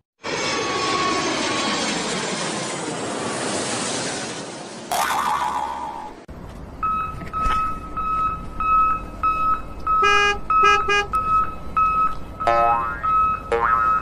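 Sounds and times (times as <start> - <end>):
high electronic beeps: 6.8 - 14.0
horn toots: 10.0 - 11.2.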